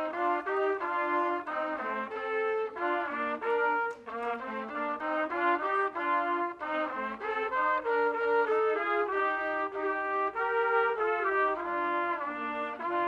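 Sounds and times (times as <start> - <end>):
trumpets playing in harmony: 0.0 - 13.0.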